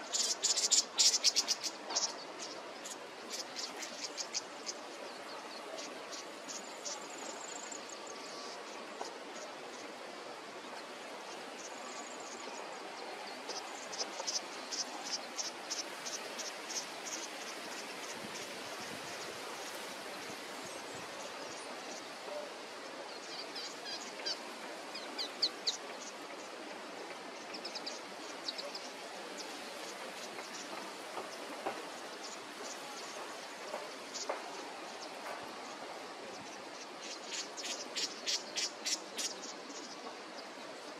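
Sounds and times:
steady hiss: 0.0 - 40.9.

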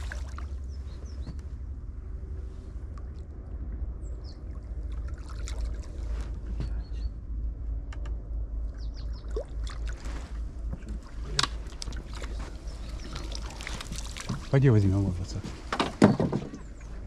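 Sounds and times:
river water splashing: 0.0 - 0.7, 4.4 - 6.2, 9.2 - 15.8
steady low rumble: 0.0 - 17.0.

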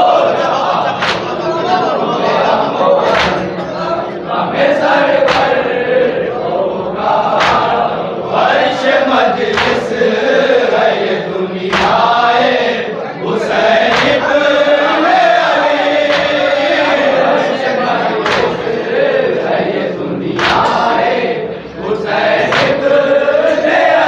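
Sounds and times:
men chanting a lament: 0.0 - 24.0
chest-beating slaps: 0.9 - 1.4, 3.0 - 3.7, 5.2 - 5.6, 7.4 - 7.9, 9.5 - 10.0, 11.7 - 12.2, 13.8 - 14.3, 16.0 - 16.7, 18.2 - 18.8, 20.4 - 20.9, 22.4 - 22.9.

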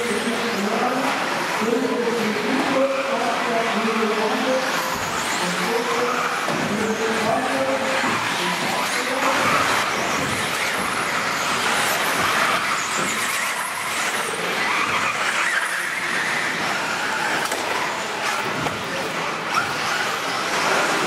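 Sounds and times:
radio-controlled buggy motors: 4.6 - 21.0.

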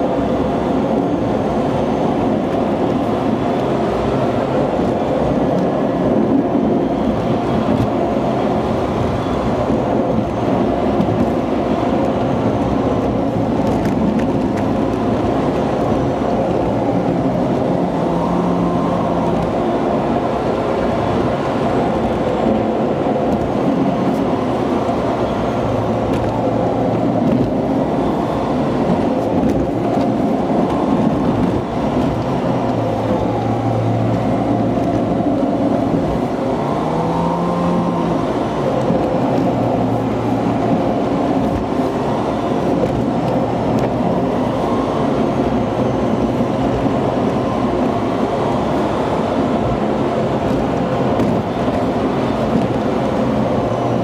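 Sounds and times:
car engine and tyre noise: 0.0 - 54.0.

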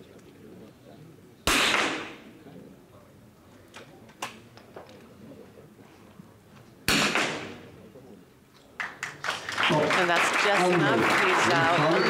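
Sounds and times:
rifle shots echoing: 1.5 - 2.3, 6.9 - 7.7.

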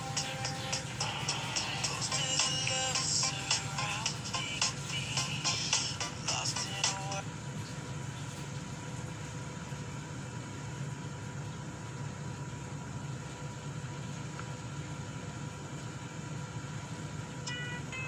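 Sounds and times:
faint constant whine: 0.0 - 18.0
machine hum: 0.0 - 18.0.

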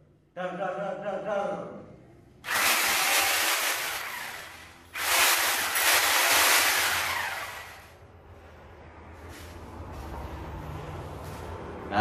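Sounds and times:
angle grinder whirring: 2.4 - 8.0.

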